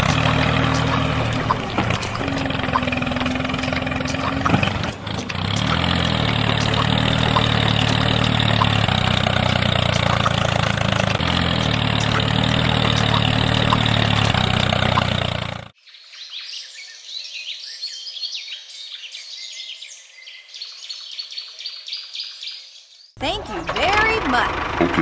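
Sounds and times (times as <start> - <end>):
small motor running: 0.0 - 15.7.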